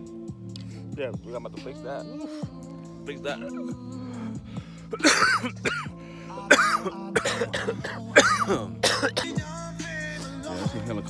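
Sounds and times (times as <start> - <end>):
background music: 0.0 - 11.0
man coughing: 4.9 - 9.4.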